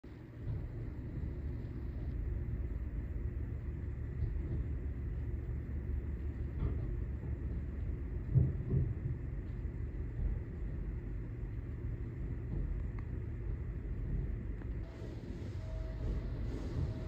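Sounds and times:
car wash low rumble: 0.0s - 17.0s.

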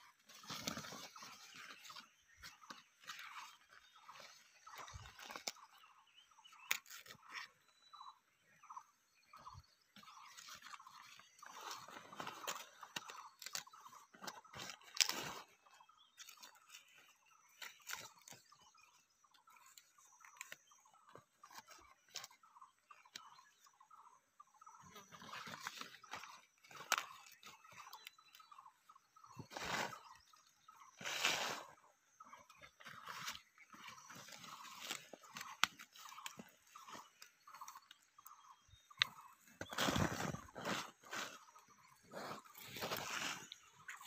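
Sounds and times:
leaves crinkling and rustling: 0.1s - 5.8s, 6.5s - 8.1s, 10.0s - 20.7s, 25.0s - 28.6s, 32.5s - 38.1s, 39.0s - 41.7s, 42.4s - 44.0s
dry twigs crackling: 25.3s - 28.1s.

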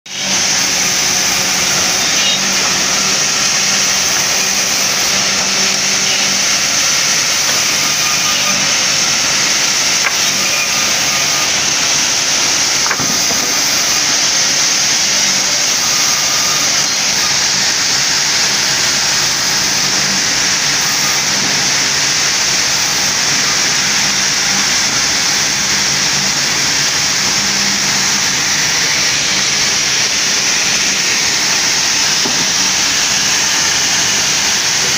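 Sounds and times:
band saw running: 0.1s - 34.9s.

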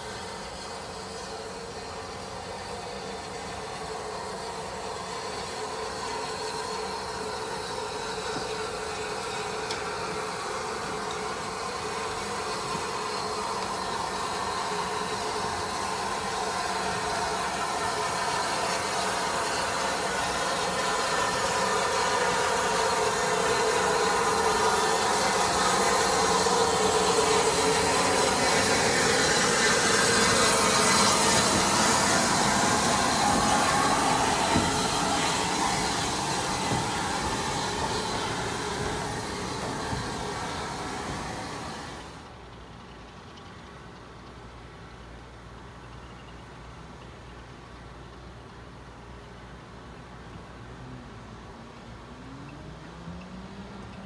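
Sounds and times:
steam locomotive hissing and humming: 0.0s - 54.0s.

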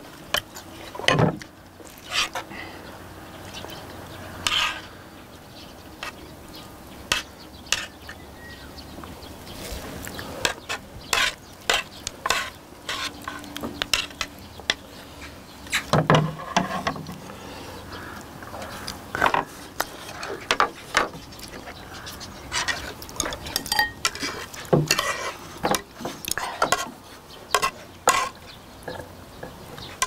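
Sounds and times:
tongs clinking on ceramic plates: 22.5s - 26.9s, 27.5s - 29.6s.

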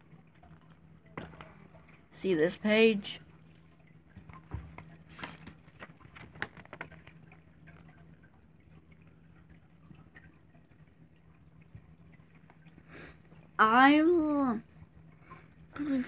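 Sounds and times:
book pages rustling and turning: 4.3s - 7.3s.

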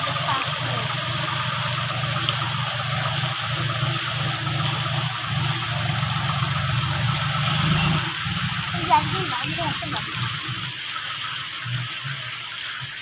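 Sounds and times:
rotary tiller churning mud: 0.0s - 10.7s
tractor diesel engine running: 0.0s - 10.8s
water sloshing: 0.0s - 10.8s.

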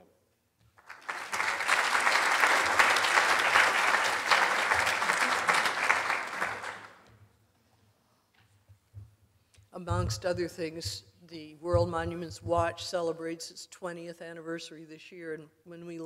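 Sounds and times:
audience applauding: 0.7s - 7.1s.

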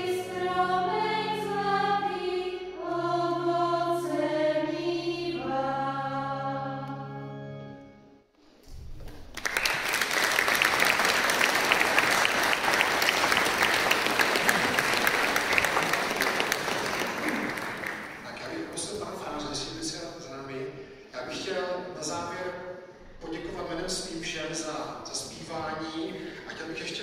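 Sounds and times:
choir holding a chord: 0.0s - 7.8s
audience applause: 9.1s - 18.8s.

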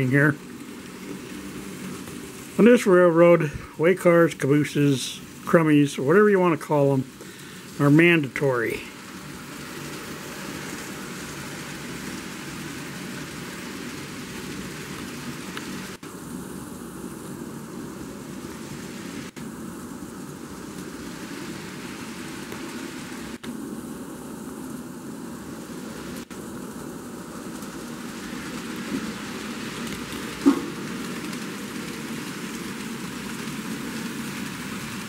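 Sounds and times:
model train motor whirring: 0.0s - 6.1s, 8.8s - 16.0s, 25.4s - 35.0s
wheels rolling over rails: 0.0s - 6.2s, 6.8s - 23.4s, 25.4s - 35.0s.

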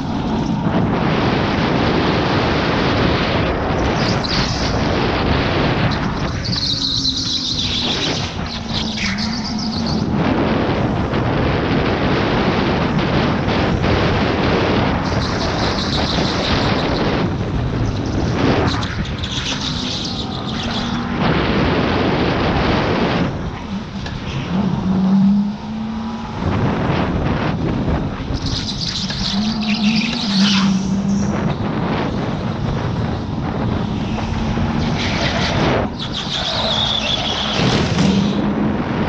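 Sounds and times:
wind rush and track noise: 0.0s - 39.0s
tyres squealing: 5.9s - 10.2s, 17.9s - 21.2s, 28.4s - 31.4s, 34.4s - 38.4s.

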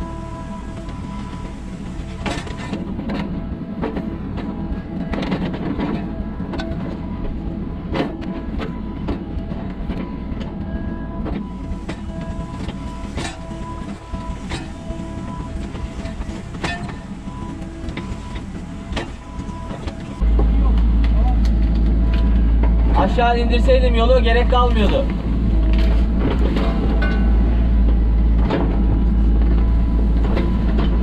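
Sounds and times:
excavator engine and hydraulics: 0.0s - 31.0s.

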